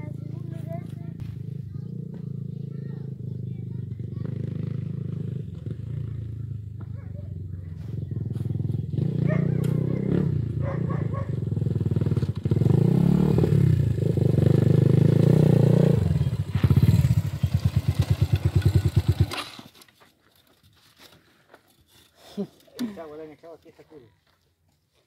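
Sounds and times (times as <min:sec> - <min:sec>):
dirt bike engine revving: 0:00.0 - 0:06.9, 0:07.7 - 0:19.7.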